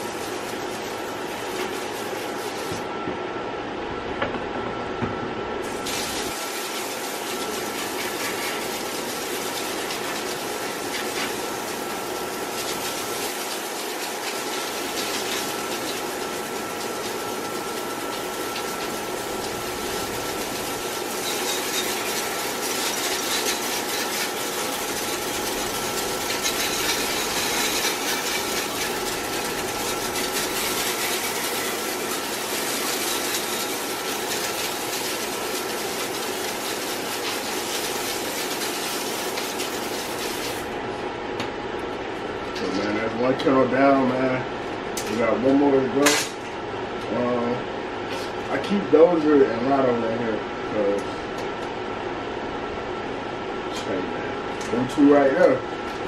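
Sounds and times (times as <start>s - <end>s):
hose spraying water on metal: 0.0s - 2.8s, 5.6s - 40.8s
steady machine hum: 0.0s - 56.0s.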